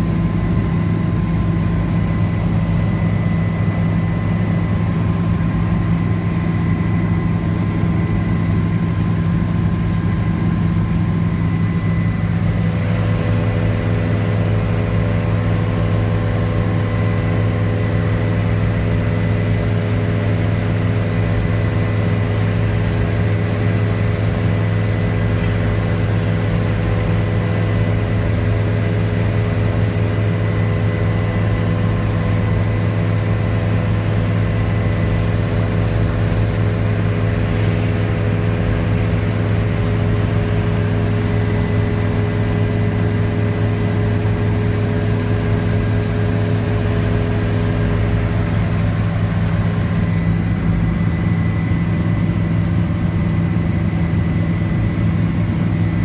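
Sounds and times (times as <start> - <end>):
helicopter rotor and engine drone: 0.0 - 56.0.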